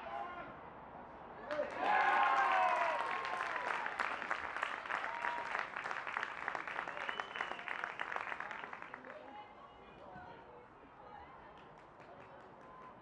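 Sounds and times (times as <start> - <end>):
spectators clapping: 1.5 - 9.2.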